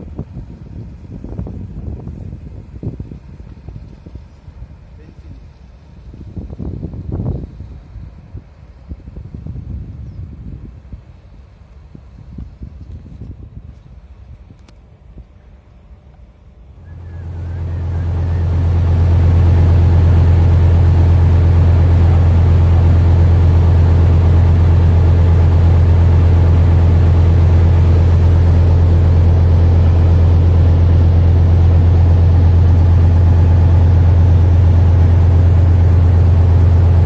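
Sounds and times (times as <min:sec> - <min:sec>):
boat engine droning: 0:15.0 - 0:37.0.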